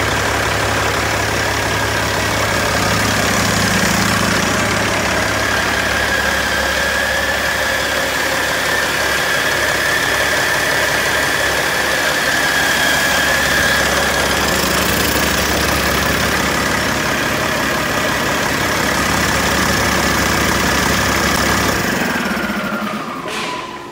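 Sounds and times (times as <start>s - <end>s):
high whine: 0.0s - 18.9s
diesel engine idling: 0.0s - 23.9s.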